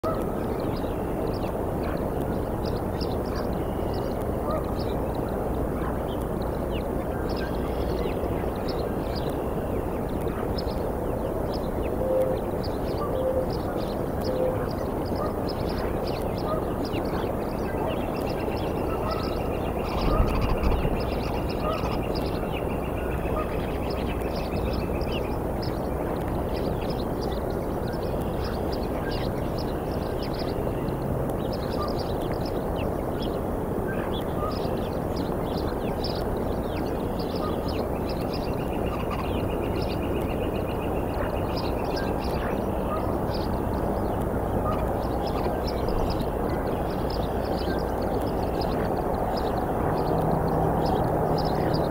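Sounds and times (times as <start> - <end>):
bird trill: 11.5 - 32.6.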